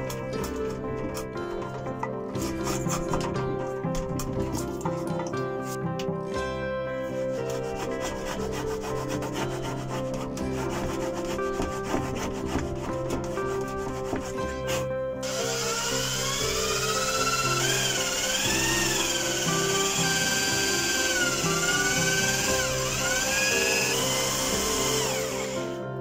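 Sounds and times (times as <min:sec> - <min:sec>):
acoustic background music: 0:00.0 - 0:26.0
hand plane scraping wood: 0:02.4 - 0:03.4, 0:07.4 - 0:14.9
power drill whining: 0:15.2 - 0:25.8.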